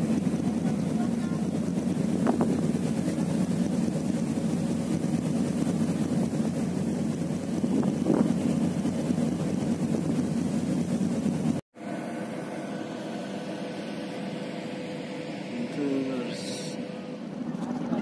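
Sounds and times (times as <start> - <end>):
water rushing past hull: 0.0 - 12.0
ship engines droning: 0.0 - 18.0.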